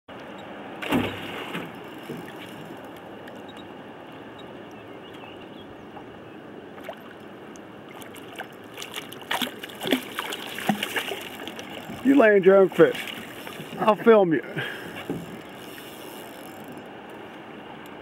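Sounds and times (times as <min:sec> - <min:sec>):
water lapping beside boat: 0:00.1 - 0:18.0
fish splashing at surface: 0:08.0 - 0:12.0.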